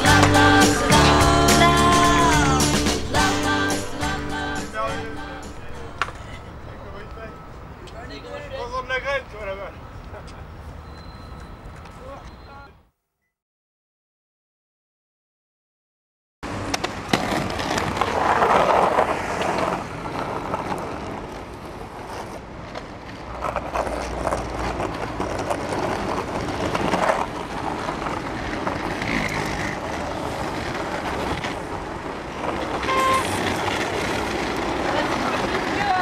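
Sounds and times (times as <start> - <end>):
skateboard wheels rolling on asphalt: 0.0 - 12.5, 16.4 - 36.0
street traffic: 0.0 - 12.9, 16.4 - 36.0
short horn toot: 32.8 - 33.5.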